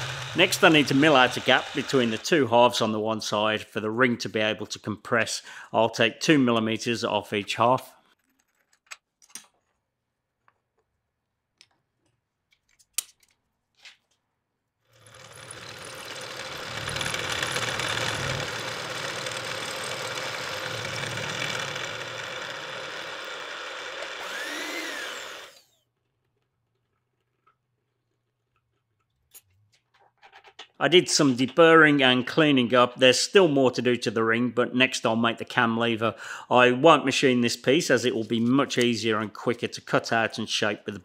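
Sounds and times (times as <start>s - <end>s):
milling machine cutting metal: 0.0s - 2.4s, 15.0s - 25.8s.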